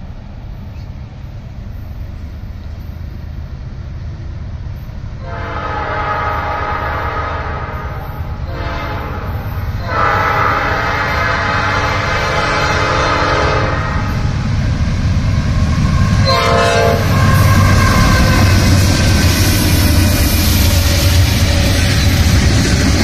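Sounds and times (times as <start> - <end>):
low train rumble: 0.0 - 23.0
locomotive air horn blasts: 5.2 - 14.2, 16.2 - 18.5.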